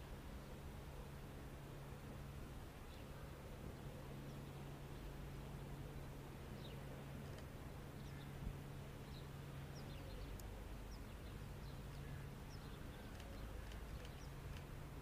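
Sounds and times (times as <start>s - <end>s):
outdoor background noise: 0.0s - 15.0s
small birds chirping: 5.8s - 15.0s.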